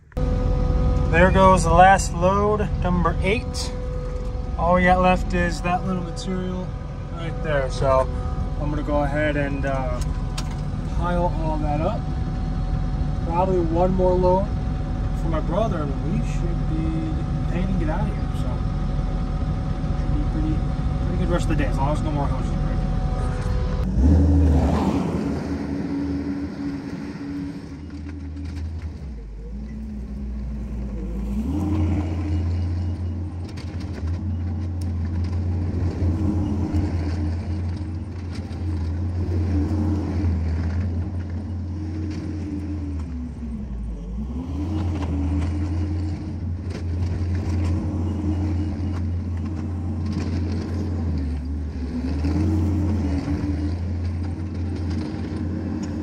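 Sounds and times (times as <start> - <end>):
diesel engine working hard: 0.0 - 56.0.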